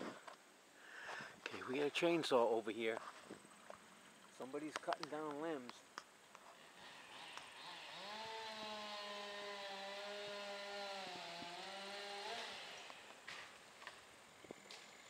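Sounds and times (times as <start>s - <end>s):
chainsaw cutting: 6.4s - 14.0s.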